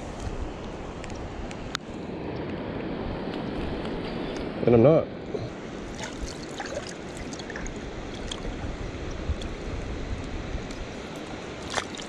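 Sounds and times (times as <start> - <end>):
river water rushing: 5.4 - 12.0
small water splashes: 5.8 - 9.6, 11.0 - 12.0.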